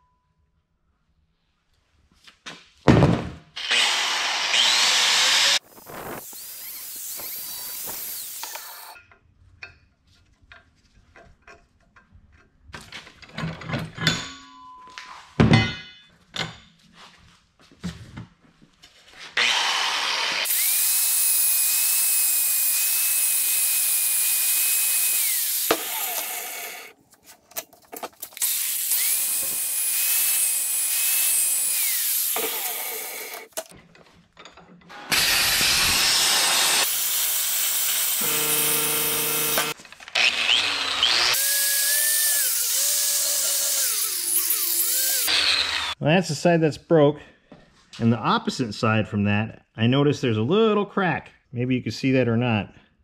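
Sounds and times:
angle grinder grinding steel: 3.6s - 9.0s, 19.4s - 26.9s, 28.2s - 33.7s, 34.9s - 46.0s
metal clanks and knocks: 9.0s - 16.8s, 33.6s - 34.9s.

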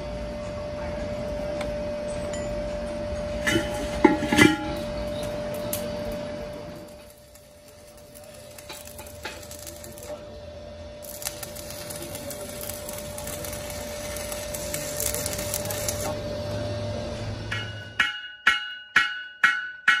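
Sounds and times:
welding arc crackling: 3.6s - 17.4s.

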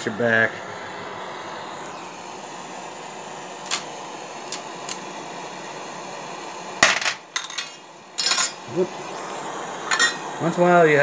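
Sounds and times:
machine whirring: 0.0s - 6.6s
brass cases clinking into metal tray: 6.8s - 8.6s.

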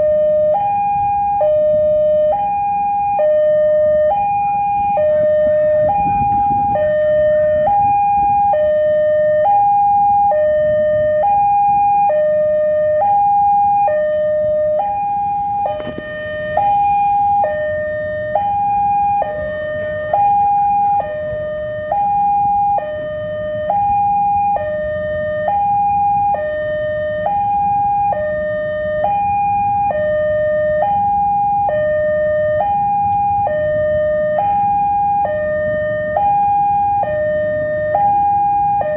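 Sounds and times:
level crossing two-tone alarm: 0.0s - 38.9s
low rumble: 4.6s - 9.4s.

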